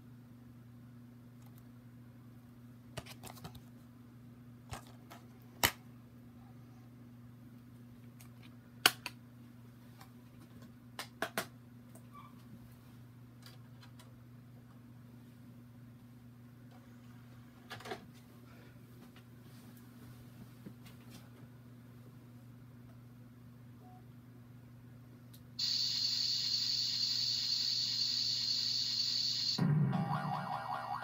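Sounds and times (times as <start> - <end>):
low electrical hum: 0.0 - 31.0.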